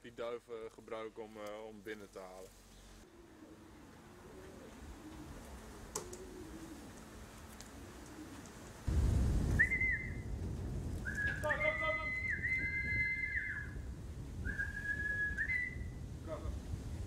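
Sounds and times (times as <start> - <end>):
wind on microphone: 8.9 - 17.0
person whistling: 9.6 - 10.2, 14.4 - 15.9.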